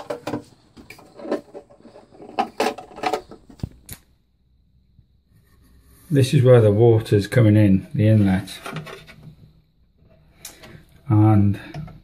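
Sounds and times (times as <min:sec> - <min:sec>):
plastic lid knocking and scraping: 0:00.0 - 0:03.8, 0:08.4 - 0:10.8.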